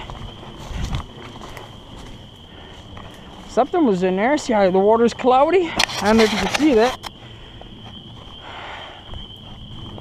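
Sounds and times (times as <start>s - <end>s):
camera handling rumble: 5.8s - 7.1s.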